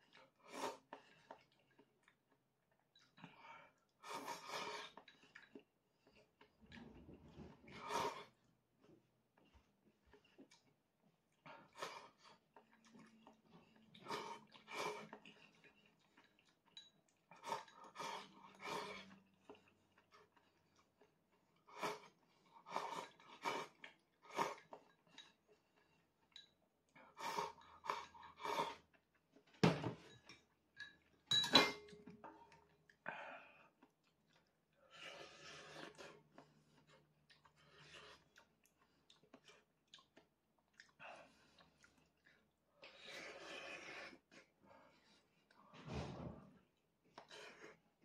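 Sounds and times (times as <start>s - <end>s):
person slurping noodles: 0.4s - 0.9s, 7.4s - 8.4s, 42.8s - 44.5s.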